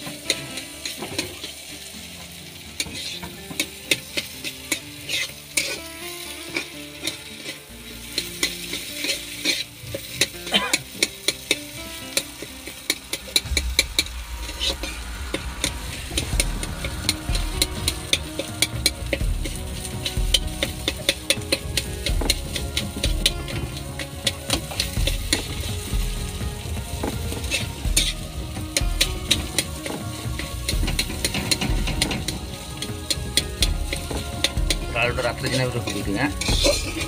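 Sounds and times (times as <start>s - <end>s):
metal spatula scraping a wok: 0.0s - 26.0s, 28.9s - 37.0s
hot oil sizzling: 0.0s - 37.0s
low rumble: 13.0s - 34.9s.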